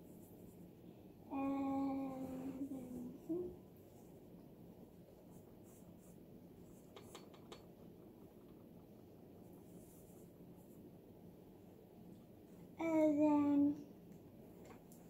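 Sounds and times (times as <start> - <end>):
pencil scratching on paper: 5.1 - 7.4, 9.4 - 10.8.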